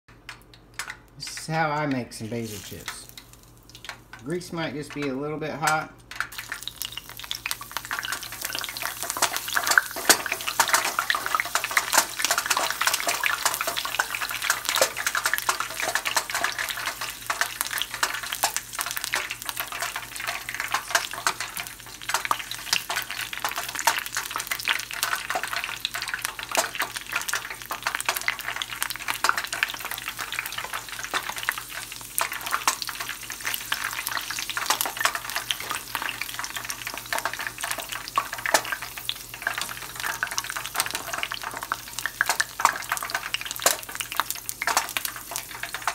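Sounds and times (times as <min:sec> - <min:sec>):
leaves sizzling in hot oil: 0:02.2 - 0:05.0, 0:06.2 - 0:45.9.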